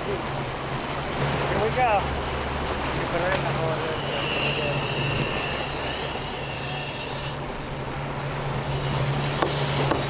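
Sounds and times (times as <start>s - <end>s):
fishing reel spool whine: 3.6s - 10.0s.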